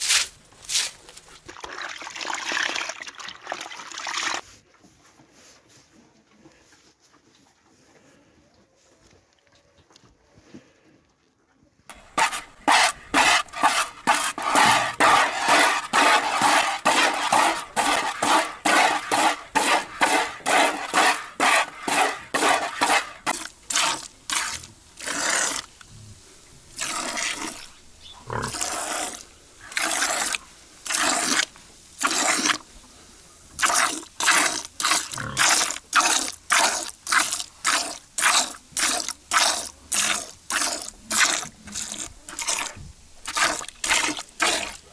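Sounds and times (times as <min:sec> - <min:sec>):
milk squirting into a bucket: 0:01.4 - 0:04.4, 0:11.9 - 0:25.7, 0:28.5 - 0:32.6, 0:33.6 - 0:44.8.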